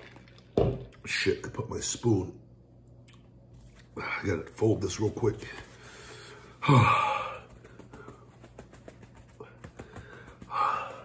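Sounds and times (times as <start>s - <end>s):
man sighing heavily: 6.6s - 7.5s.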